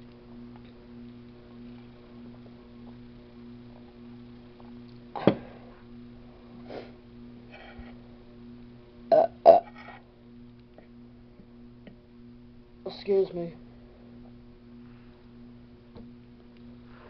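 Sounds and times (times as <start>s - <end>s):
steady low hum: 0.0s - 17.0s
woman burping: 9.1s - 9.8s.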